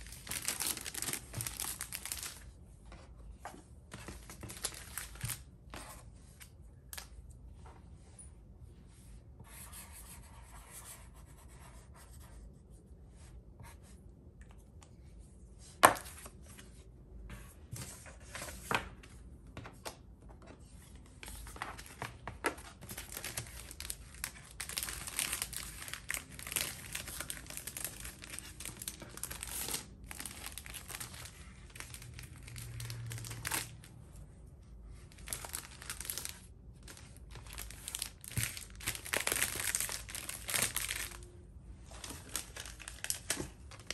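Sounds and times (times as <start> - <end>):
plastic sleeves and paper crinkling: 0.0 - 7.3, 20.6 - 34.0, 34.9 - 43.9.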